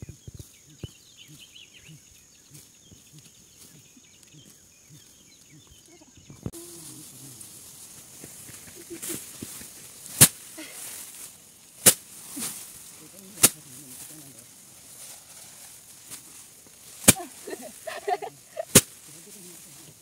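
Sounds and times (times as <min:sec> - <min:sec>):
rice sheaves whacking hard surface: 0:07.4 - 0:20.0.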